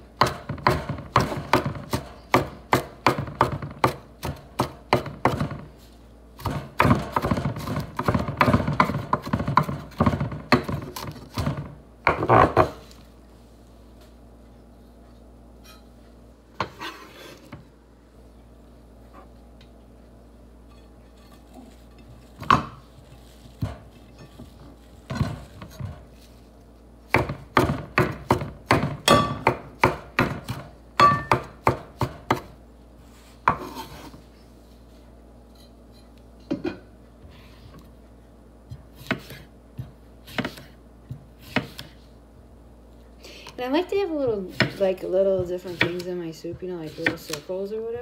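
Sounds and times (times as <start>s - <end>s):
knife chopping on wooden board: 0.2s - 5.7s, 6.4s - 12.9s, 22.4s - 22.9s, 23.5s - 26.1s, 27.1s - 32.6s, 38.7s - 42.0s, 44.2s - 44.8s, 45.4s - 47.5s
knife slicing cucumber: 38.8s - 42.0s, 44.4s - 44.8s, 45.5s - 46.1s.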